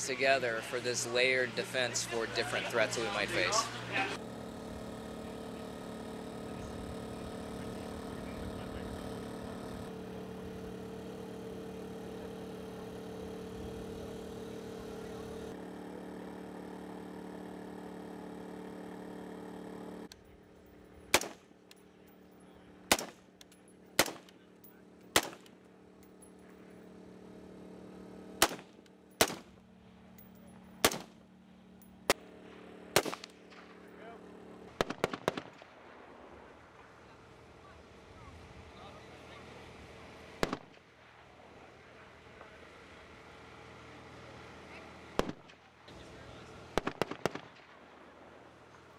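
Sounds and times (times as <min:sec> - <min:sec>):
drones buzzing overhead: 0:00.0 - 0:48.9
rifle shots: 0:21.1 - 0:21.5, 0:22.9 - 0:23.3, 0:24.0 - 0:24.3, 0:25.1 - 0:25.5, 0:28.4 - 0:29.6, 0:30.8 - 0:31.2, 0:32.1 - 0:33.8, 0:34.7 - 0:35.9, 0:40.4 - 0:40.8, 0:45.2 - 0:45.6, 0:46.7 - 0:47.8.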